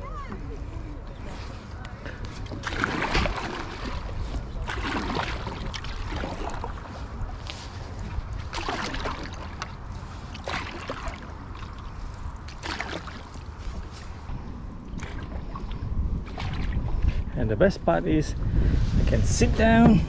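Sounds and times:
paddle splashing in water: 1.2s - 14.2s, 14.9s - 17.2s.

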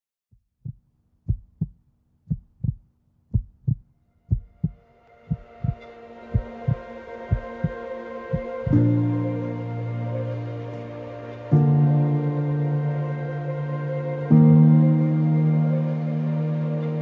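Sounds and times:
heartbeat thumps: 0.4s - 8.8s
soft music pad: 4.2s - 17.0s.

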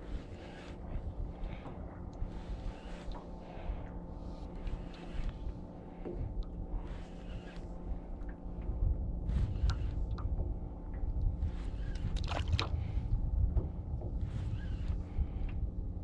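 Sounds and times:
waves lapping against boat: 0.0s - 15.4s
faint steady hum: 0.0s - 16.0s
wind on microphone: 0.0s - 16.0s
water splashes: 12.1s - 12.9s.

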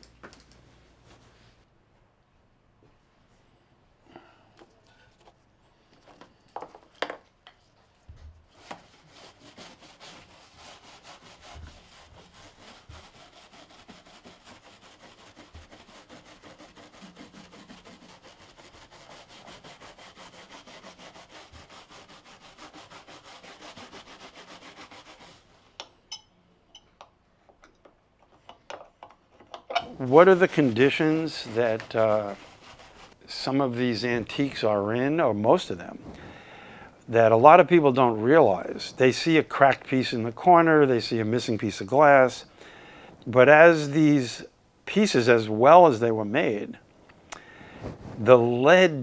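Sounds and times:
rhythmic rubbing strokes: 8.8s - 25.6s, 29.8s - 34.8s.

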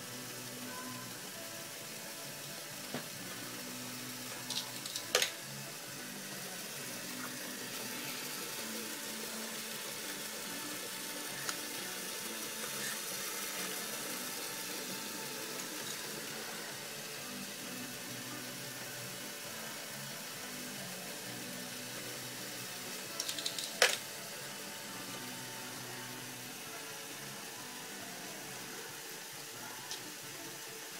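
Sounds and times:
toy motors whirring: 0.0s - 30.9s
plastic parts rattling: 23.2s - 24.0s.

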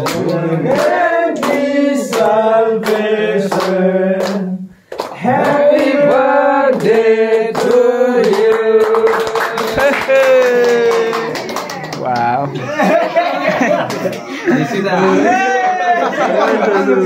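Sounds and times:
group singing together: 0.0s - 9.9s
hands clapping to beat: 0.0s - 12.6s.

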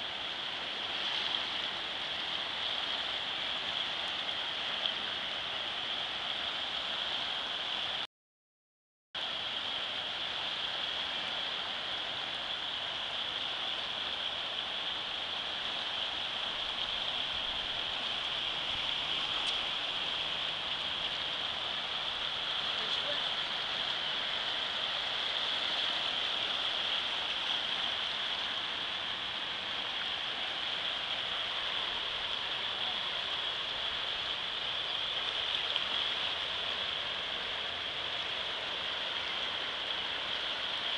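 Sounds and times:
floodwater rushing: 0.0s - 8.1s, 9.2s - 40.9s.

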